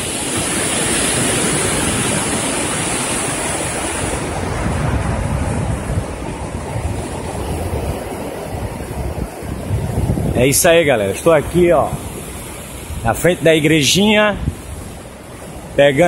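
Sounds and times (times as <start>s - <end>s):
surf breaking on a beach: 0.0s - 16.0s
wind buffeting microphone: 0.0s - 16.0s.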